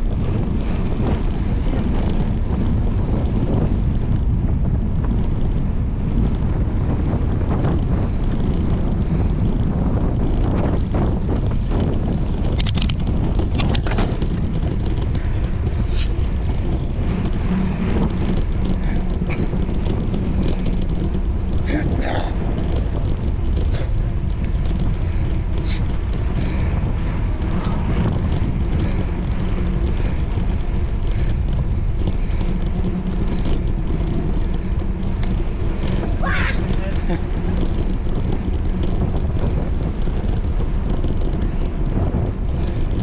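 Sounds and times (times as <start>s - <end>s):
wind buffeting microphone: 0.0s - 43.0s
light clicks and rattles: 6.2s - 43.0s.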